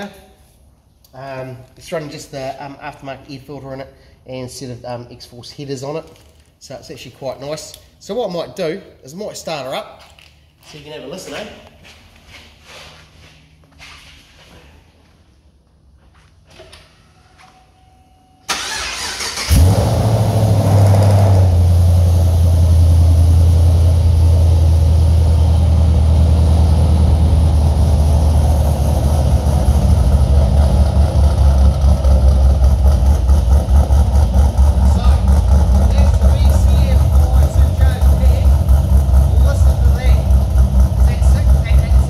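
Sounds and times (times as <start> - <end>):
engine starter cranking: 18.5 - 19.9
car engine revving and idling: 18.6 - 42.0.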